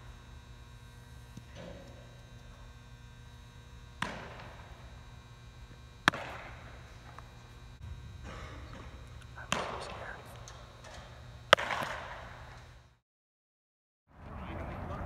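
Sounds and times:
steady low hum: 0:00.0 - 0:13.0
baseball smacking into glove: 0:04.0 - 0:04.7, 0:06.0 - 0:07.4, 0:10.8 - 0:12.3
faint echoing crack: 0:06.0 - 0:07.6, 0:08.2 - 0:12.7.

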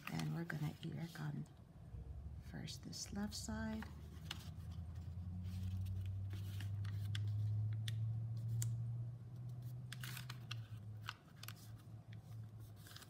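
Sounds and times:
paper rustling and crackling: 0:00.0 - 0:01.2, 0:03.7 - 0:07.6, 0:09.7 - 0:13.0
steady low hum: 0:00.0 - 0:09.7.

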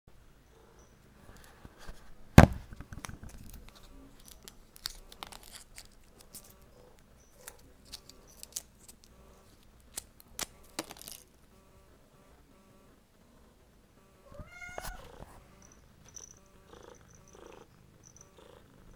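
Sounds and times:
foil blister pack crinkling: 0:03.0 - 0:06.7, 0:07.3 - 0:11.4.

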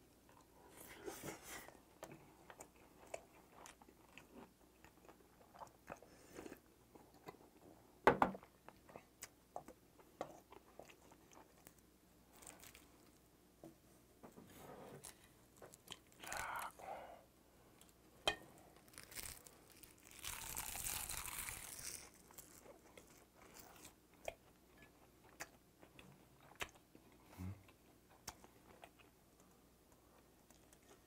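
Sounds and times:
close-up chewing with mouth clicks: 0:02.0 - 0:07.6, 0:08.5 - 0:13.2, 0:18.8 - 0:31.0.

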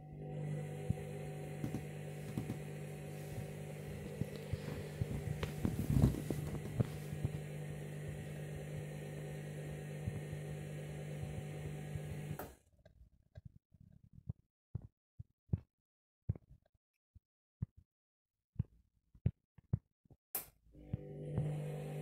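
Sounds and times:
washing machine motor hum: 0:00.0 - 0:12.5, 0:20.8 - 0:22.0.

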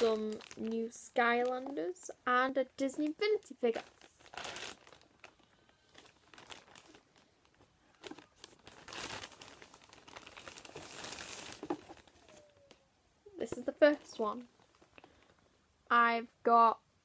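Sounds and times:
paper crinkling and rustling: 0:03.6 - 0:12.8.

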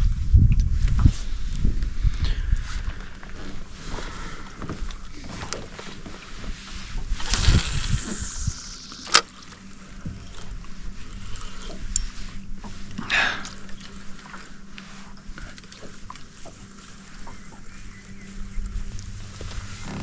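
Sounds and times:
water lapping at boat hull: 0:09.0 - 0:20.0.

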